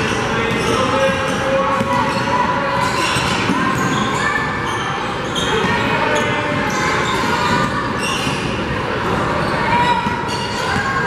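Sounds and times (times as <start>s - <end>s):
sneakers squeaking: 0.0s - 11.0s
voices echoing in gym: 0.0s - 11.0s.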